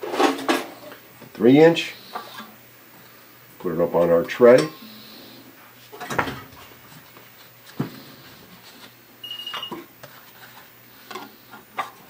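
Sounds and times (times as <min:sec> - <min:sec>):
high-pitched beep: 0:09.2 - 0:09.8.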